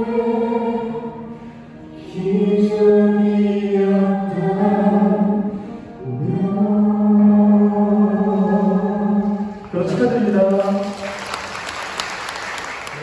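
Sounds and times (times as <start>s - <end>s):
vocal quartet singing in harmony: 0.0s - 10.2s.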